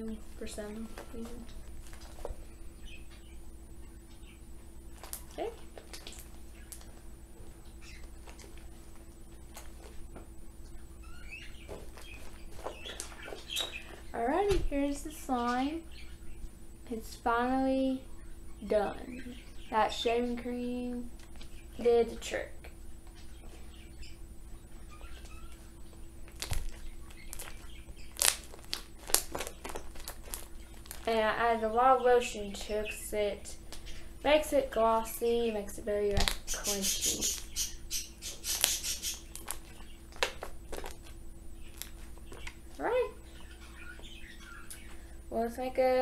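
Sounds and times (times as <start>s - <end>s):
slime squishing: 26.3s - 31.2s.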